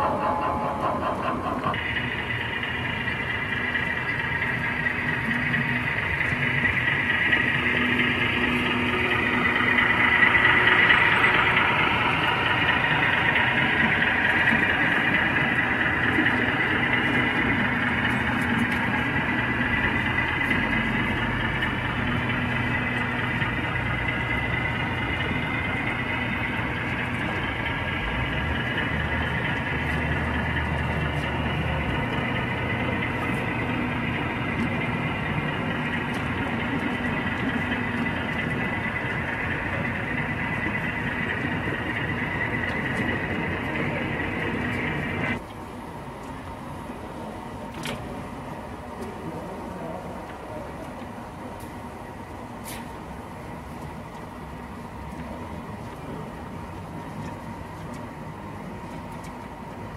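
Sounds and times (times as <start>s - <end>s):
model train wheels rumbling: 0.0s - 45.6s
low motor hum: 0.0s - 59.9s.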